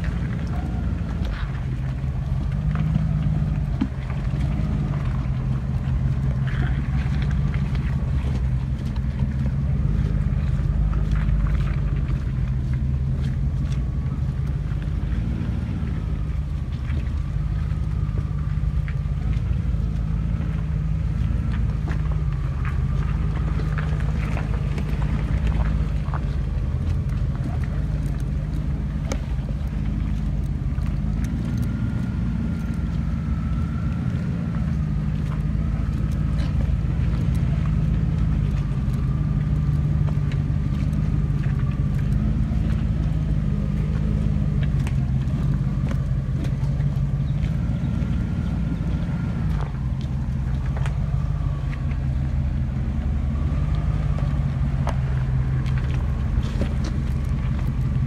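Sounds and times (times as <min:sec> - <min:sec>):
engine running at low revs: 0:00.0 - 0:58.0
tyres clicking on stones and twigs: 0:00.0 - 0:58.0.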